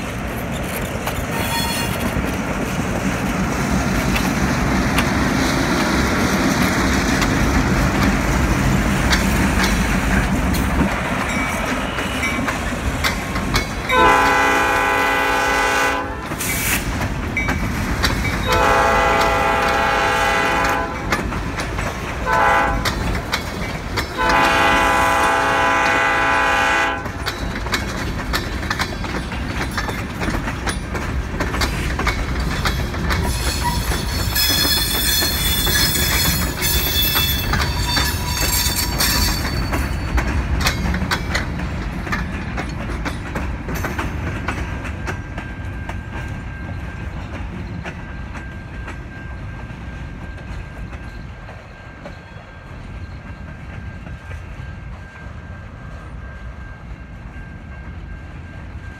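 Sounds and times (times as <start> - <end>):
diesel locomotive engine rumbling: 0.0 - 58.9
train wheels clicking over rail joints: 0.0 - 58.9
locomotive air horn: 13.9 - 16.8, 18.5 - 21.1, 22.2 - 22.9, 24.2 - 27.2.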